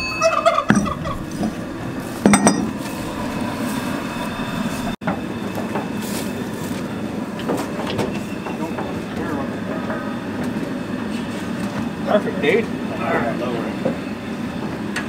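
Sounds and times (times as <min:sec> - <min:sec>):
gas burner rushing: 0:00.7 - 0:09.5
metallic clink: 0:02.2 - 0:02.9.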